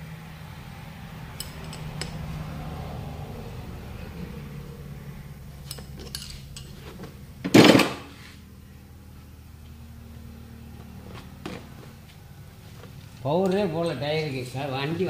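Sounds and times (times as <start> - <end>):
low hum: 0.0 - 7.6
pliers clicking on metal: 1.4 - 2.2, 5.6 - 6.8
tool clattering down: 5.7 - 8.2.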